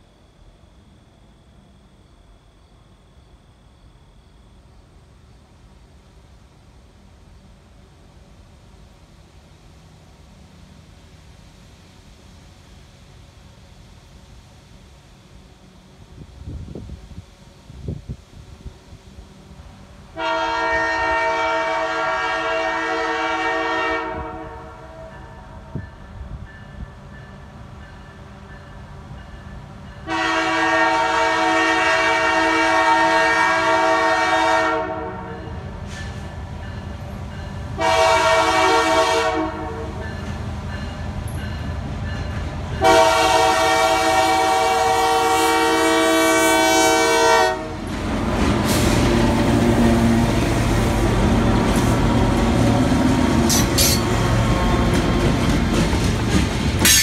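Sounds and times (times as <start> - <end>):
locomotive chime horn: 20.2 - 27.3, 30.0 - 35.7, 36.7 - 41.7, 42.8 - 47.8
train wheels clattering: 39.9 - 43.6, 47.7 - 57.0
freight cars rolling past: 47.5 - 57.0
locomotive engines running: 47.7 - 57.0.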